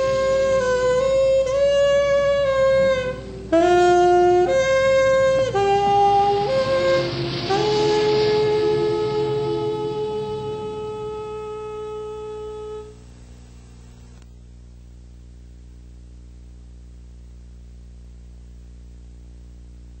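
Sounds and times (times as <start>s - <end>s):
film music held chord: 0.0s - 13.0s
steady low hum: 0.0s - 20.0s.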